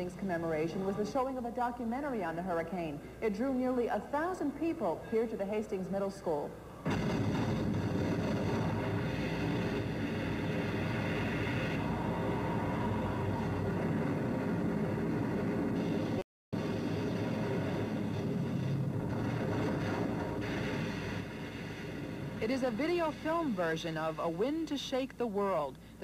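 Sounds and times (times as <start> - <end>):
rushing storm noise over loudspeakers: 6.9 - 24.4.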